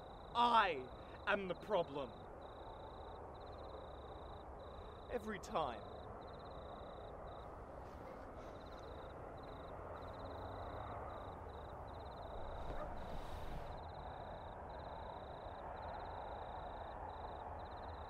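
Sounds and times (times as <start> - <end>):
low background hiss: 0.0 - 18.0.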